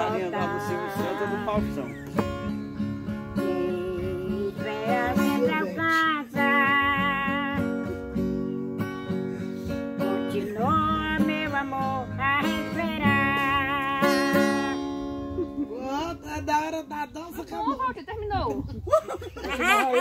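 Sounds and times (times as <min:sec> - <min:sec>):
elderly woman singing: 0:00.0 - 0:01.9, 0:02.8 - 0:09.0, 0:09.7 - 0:15.0
acoustic guitar strumming: 0:00.0 - 0:17.0.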